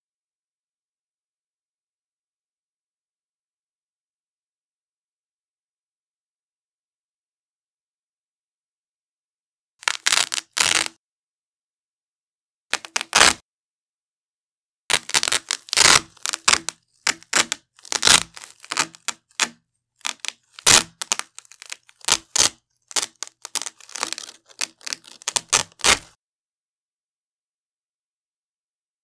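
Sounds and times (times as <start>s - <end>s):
velcro strap ripping: 9.8s - 11.0s, 12.7s - 13.4s, 14.9s - 26.2s.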